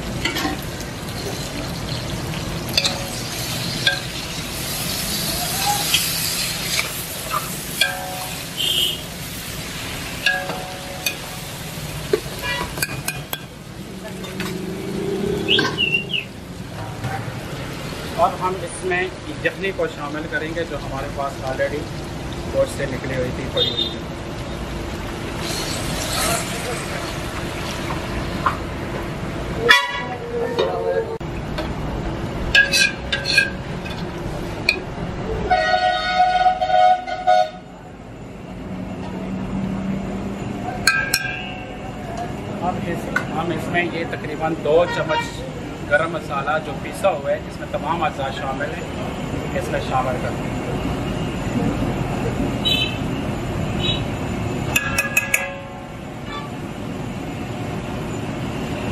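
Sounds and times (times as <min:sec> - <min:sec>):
metal ladle clinking on pot: 0:02.7 - 0:04.1, 0:40.9 - 0:41.6, 0:54.8 - 0:55.7
vehicle horn: 0:08.5 - 0:09.1, 0:35.5 - 0:37.6, 0:44.8 - 0:45.5, 0:52.6 - 0:53.0
bird chirping: 0:15.4 - 0:16.3.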